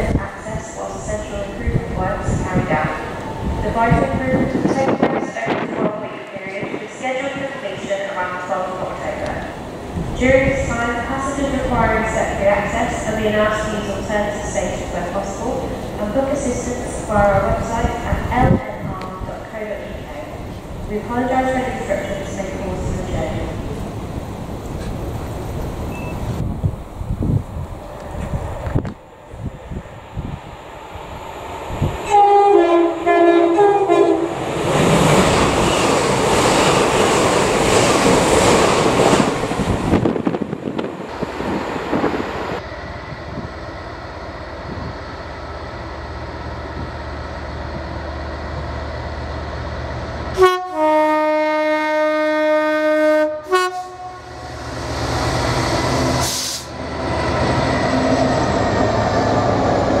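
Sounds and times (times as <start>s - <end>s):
train engine and wagons rumbling: 0.0s - 60.0s
two-tone locomotive horn: 32.1s - 34.4s, 50.4s - 54.5s.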